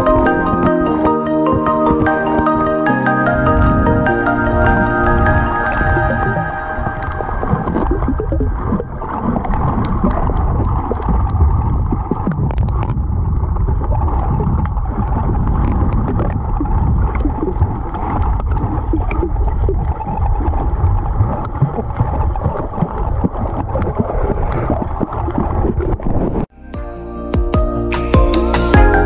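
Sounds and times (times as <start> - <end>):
underwater rush of water: 0.0 - 26.5
small underwater clicks and crackles: 5.2 - 26.4.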